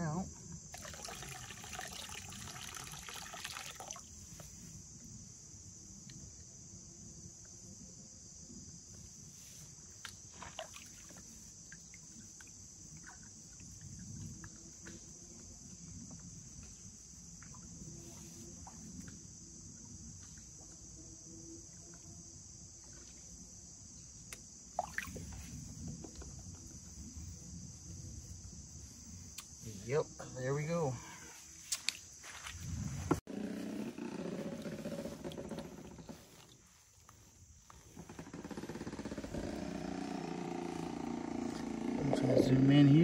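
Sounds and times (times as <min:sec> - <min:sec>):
water splash: 0:00.8 - 0:04.1, 0:10.3 - 0:11.2, 0:24.8 - 0:25.4
water sloshing in a plastic pan: 0:10.1 - 0:12.2
high-pitched insect drone: 0:10.7 - 0:43.0.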